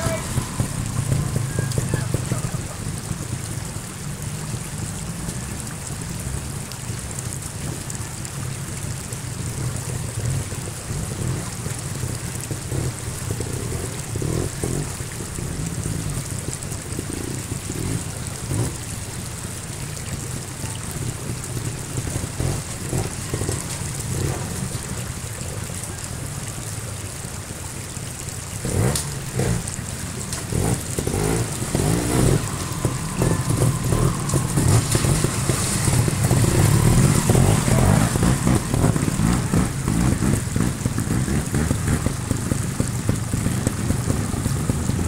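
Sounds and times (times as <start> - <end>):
stream rushing: 0.0 - 45.0
motorcycle engine at low revs: 9.3 - 26.4, 28.3 - 45.0
motorcycle throttle blips: 28.9 - 45.0.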